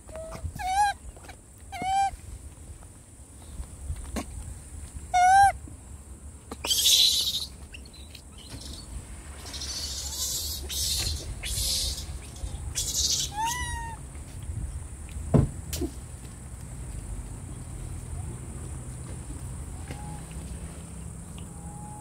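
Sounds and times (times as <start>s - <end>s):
monkey cooing: 0.2s - 1.0s, 5.2s - 5.6s, 12.7s - 14.0s
sharp thump: 15.3s - 15.9s.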